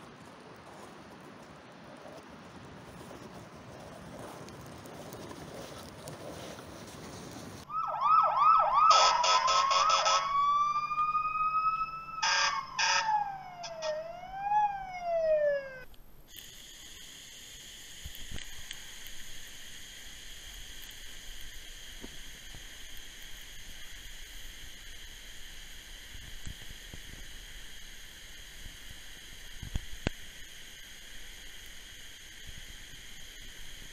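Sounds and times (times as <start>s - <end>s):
toy fire truck siren: 7.7s - 15.8s
harsh horn-like blasts: 8.9s - 10.3s.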